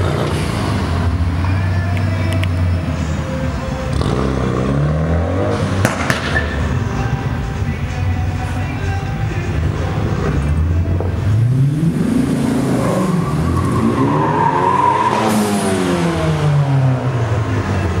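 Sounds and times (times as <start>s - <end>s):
cars accelerating past: 3.8s - 6.9s, 10.0s - 18.0s.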